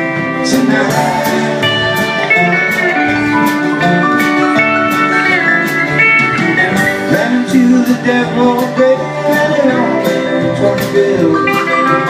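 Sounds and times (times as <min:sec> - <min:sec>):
sliding pedal steel guitar: 0:00.0 - 0:12.0
strummed acoustic guitar: 0:00.0 - 0:12.0
upright bass: 0:00.0 - 0:12.0.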